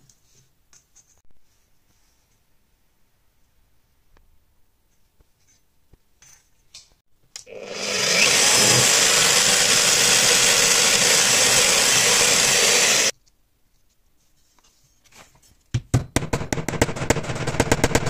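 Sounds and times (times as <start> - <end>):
drill press drilling: 7.5 - 13.1.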